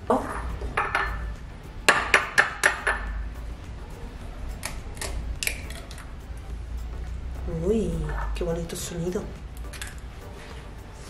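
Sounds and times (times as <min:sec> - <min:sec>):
eggshell cracking open: 0:04.6 - 0:06.1.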